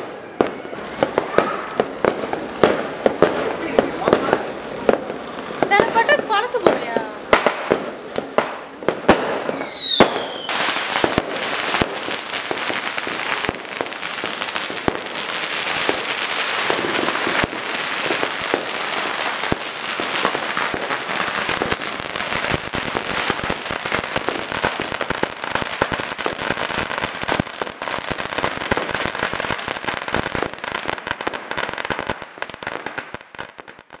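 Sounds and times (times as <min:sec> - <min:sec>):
firecrackers crackling and popping: 0:00.0 - 0:34.0
firework fountain hissing: 0:00.8 - 0:34.0.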